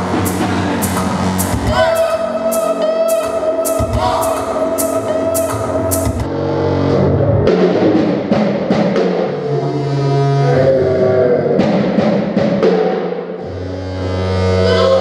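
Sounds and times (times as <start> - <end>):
sharp percussion hits: 0.0 - 6.3
low bass notes: 0.0 - 12.4.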